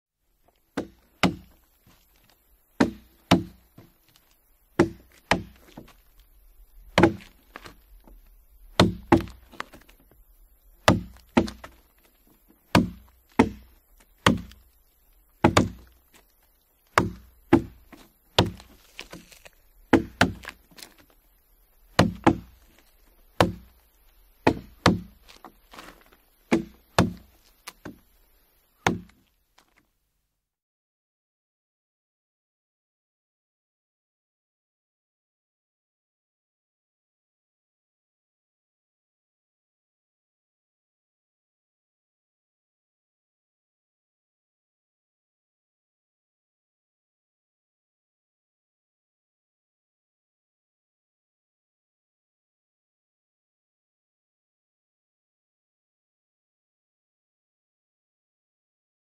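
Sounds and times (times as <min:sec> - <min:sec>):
adzes chopping wood: 0:00.8 - 0:06.2, 0:06.9 - 0:10.2, 0:10.8 - 0:21.2, 0:21.8 - 0:28.1, 0:28.8 - 0:29.8.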